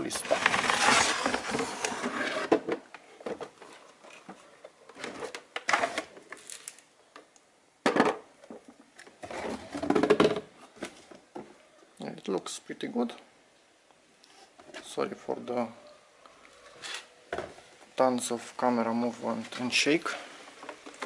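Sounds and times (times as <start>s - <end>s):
cardboard box scraping and rustling: 0.2s - 2.6s.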